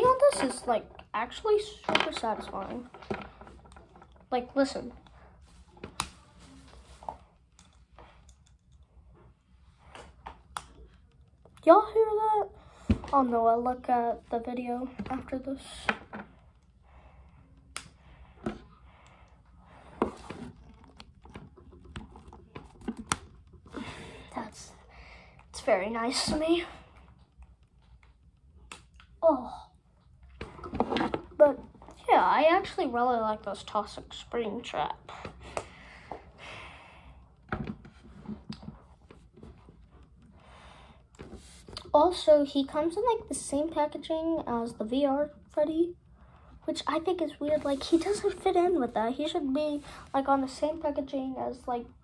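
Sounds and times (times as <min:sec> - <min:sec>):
plastic figure rustling: 0:00.0 - 0:07.9, 0:19.6 - 0:24.7.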